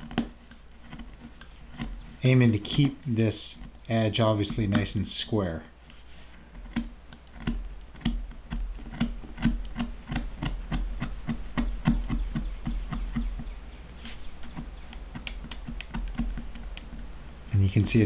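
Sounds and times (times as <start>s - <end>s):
craft knife cutting leather clicks: 4.4s - 5.0s, 6.6s - 13.4s, 14.0s - 17.4s.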